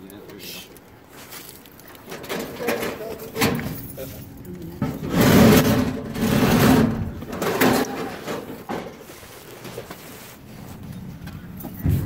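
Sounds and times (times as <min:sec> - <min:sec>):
metal roll-up door rattling: 0:02.0 - 0:04.0, 0:04.8 - 0:08.9.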